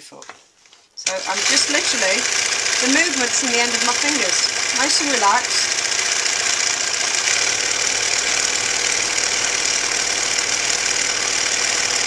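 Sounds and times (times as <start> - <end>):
sewing machine running fast: 1.0 - 12.0.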